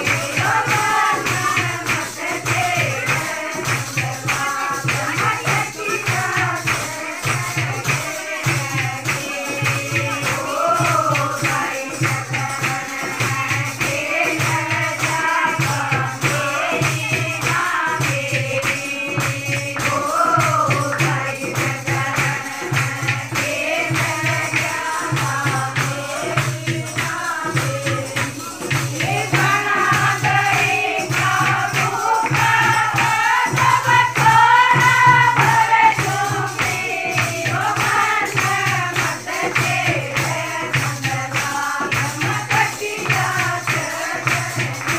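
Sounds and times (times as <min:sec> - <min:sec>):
rhythmic hand clapping: 0:00.0 - 0:44.9
women singing together: 0:00.0 - 0:44.9.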